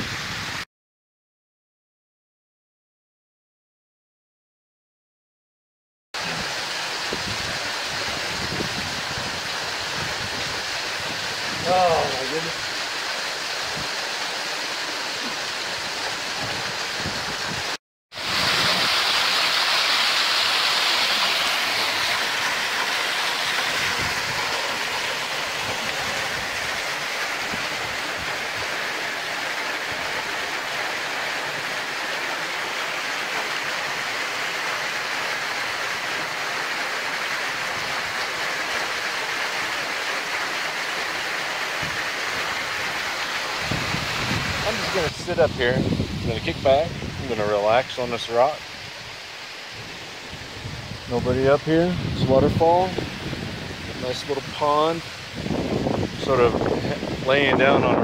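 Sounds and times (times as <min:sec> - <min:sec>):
waterfall pouring into pool: 0:06.2 - 0:58.0.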